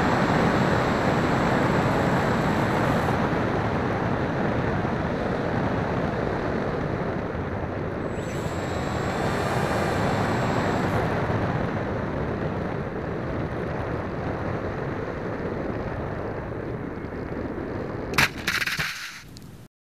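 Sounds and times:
faint high whine: 0.0s - 4.2s, 7.8s - 12.9s
wind and motor noise: 0.0s - 19.7s
plane landing thump and rattle: 15.7s - 19.7s.

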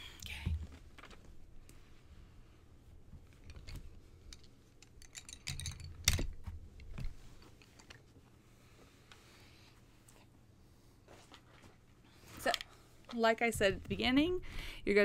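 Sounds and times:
wooden pencils clicking and rattling: 3.3s - 6.9s.

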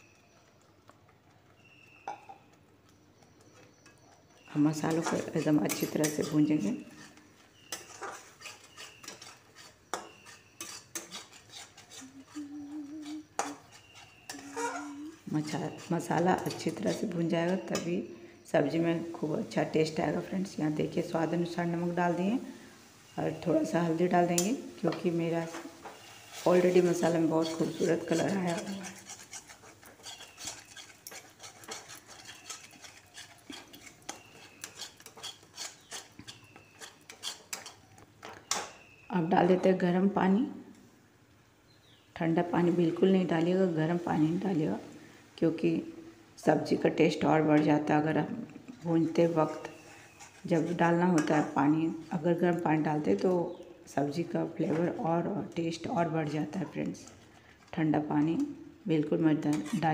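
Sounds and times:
paste frying: 3.7s - 17.9s, 18.9s - 38.9s, 49.2s - 53.2s
spatula scraping a steel pan: 4.7s - 17.9s, 25.4s - 37.9s, 49.2s - 51.6s, 59.5s - 59.9s.

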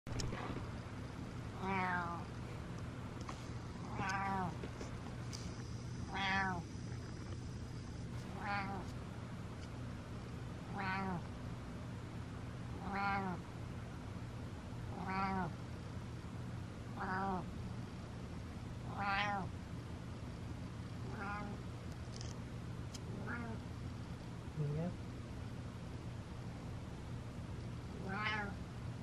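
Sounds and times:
cat meowing: 1.6s - 2.3s, 3.9s - 4.6s, 6.1s - 6.7s, 8.3s - 8.9s, 10.7s - 11.3s, 12.8s - 13.4s, 14.9s - 15.6s, 17.0s - 17.5s, 18.9s - 19.5s, 21.1s - 21.6s, 23.2s - 23.6s, 28.0s - 28.6s.

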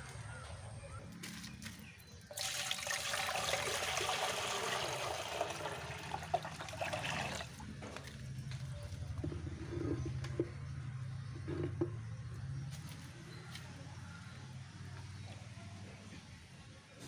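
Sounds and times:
water gushing into glass aquarium: 2.3s - 7.6s.

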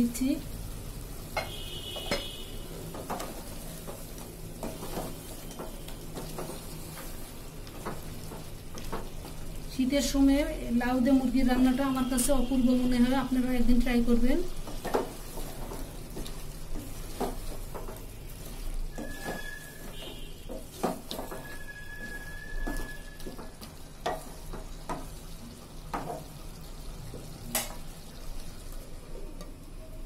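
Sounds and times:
chicken sizzling in oil: 0.0s - 30.0s
spatula scraping a pot: 14.7s - 24.6s.

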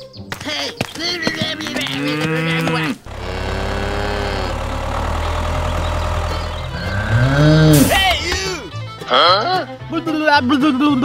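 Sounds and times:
cow mooing: 1.8s - 8.0s
tractor engine idling: 3.0s - 9.0s.

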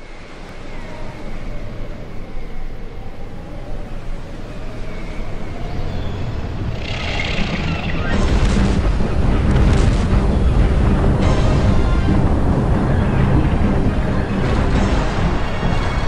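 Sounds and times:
low rumble: 6.1s - 16.0s.

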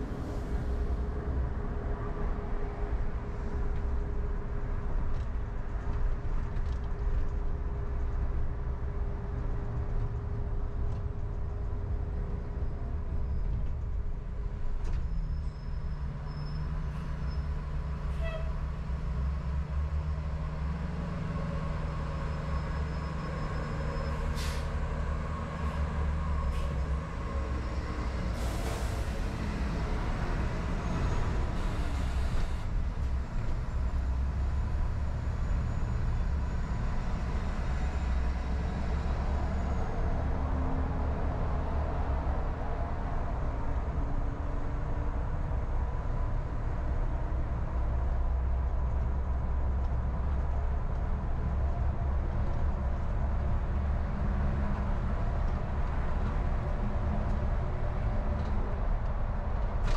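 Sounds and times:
bus air brakes hiss: 24.2s - 24.8s, 28.3s - 29.5s, 31.4s - 32.7s.

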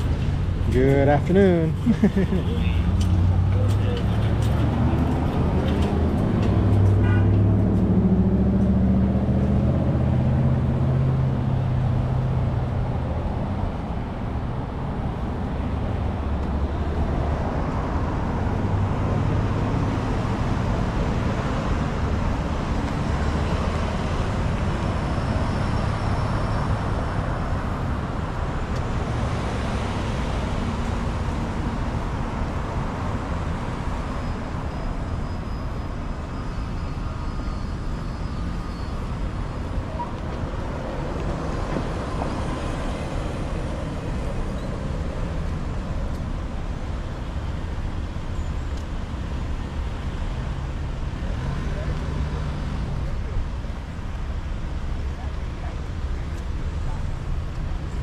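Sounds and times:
cars driving past: 0.0s - 58.0s
close vehicle engine hum: 0.0s - 58.0s.

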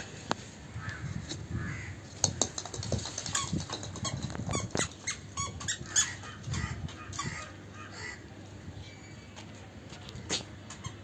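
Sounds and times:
squeaky toddler shoes: 3.4s - 7.4s, 10.2s - 11.0s.

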